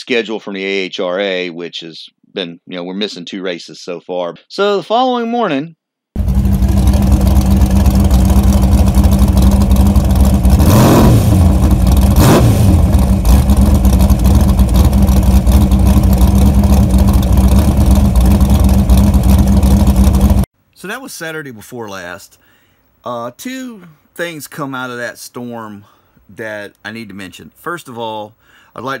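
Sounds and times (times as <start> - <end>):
engine and road rumble: 6.2 - 20.5.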